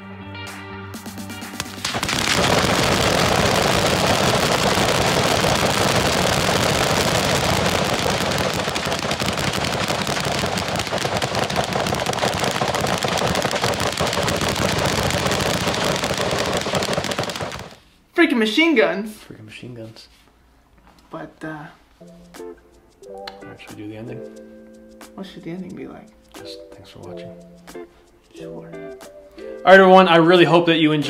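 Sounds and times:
rattle of gunfire: 1.8s - 17.8s.

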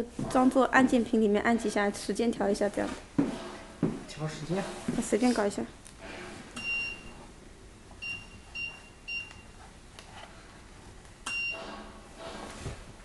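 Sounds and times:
short electronic beeps: 6.6s - 7.2s.

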